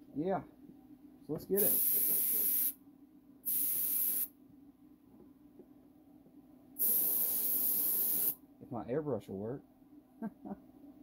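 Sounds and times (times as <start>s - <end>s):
faint steady hum: 0.0s - 11.0s
airbrush spraying hiss: 1.6s - 2.8s, 3.5s - 4.3s, 6.8s - 8.4s.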